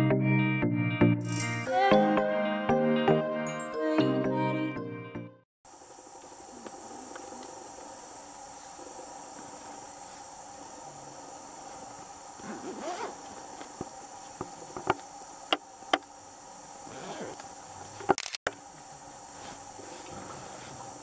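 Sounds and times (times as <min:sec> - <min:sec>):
insects droning: 0:05.7 - 0:21.0.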